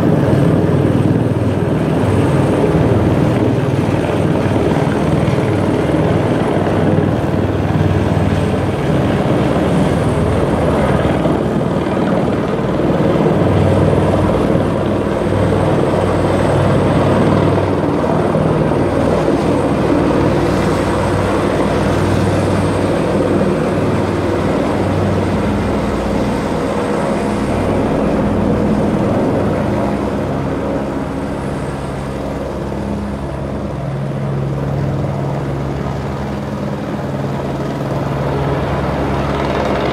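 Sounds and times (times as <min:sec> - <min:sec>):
helicopter rotor beat: 0:00.0 - 0:39.9
turbine whine: 0:00.0 - 0:39.9.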